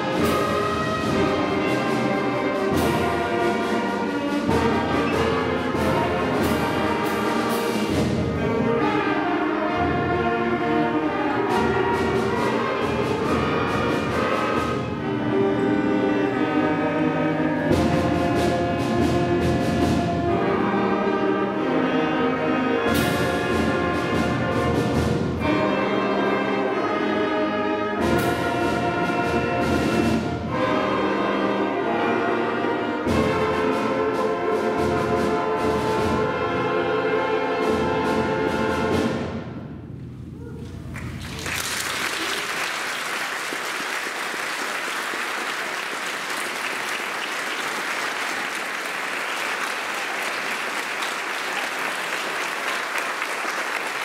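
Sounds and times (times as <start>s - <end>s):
audience applauding: 40.9s - 54.0s.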